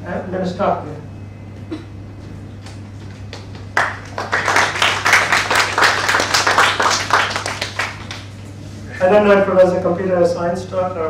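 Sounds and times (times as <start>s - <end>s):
audience applauding: 3.3s - 8.4s.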